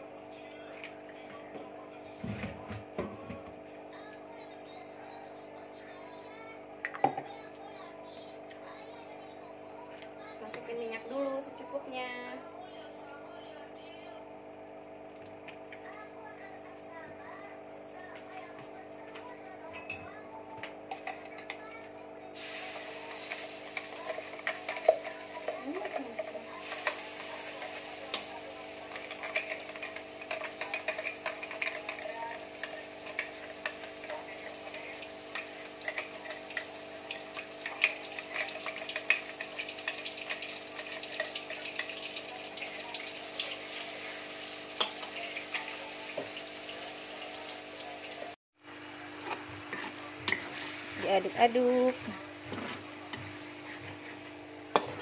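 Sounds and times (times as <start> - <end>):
paste sizzling in hot oil: 22.4 - 48.4
metal spatula stirring: 22.7 - 42.8.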